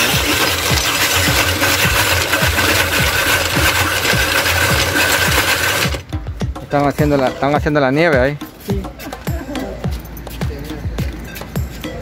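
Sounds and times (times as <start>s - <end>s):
ice-shaving machine rasping: 0.0s - 6.1s.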